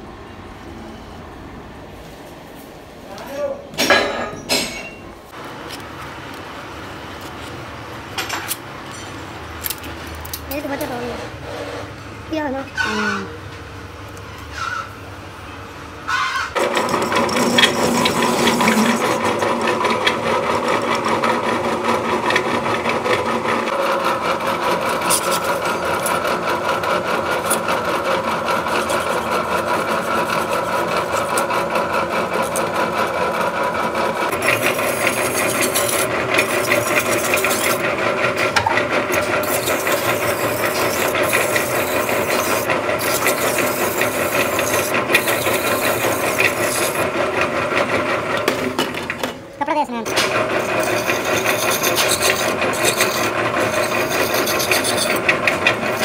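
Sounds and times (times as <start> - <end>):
hacksaw blade scraping threads: 16.6 - 20.2, 24.6 - 33.4, 34.3 - 47.2, 50.1 - 56.0
metal lathe running: 16.6 - 49.3, 50.1 - 56.0.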